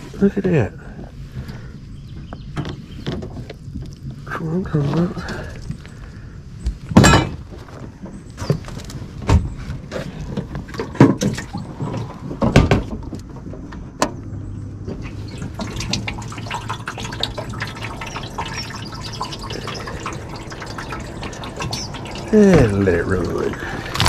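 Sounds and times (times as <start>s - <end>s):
water splashing and dripping: 10.6s - 12.2s, 14.9s - 24.0s.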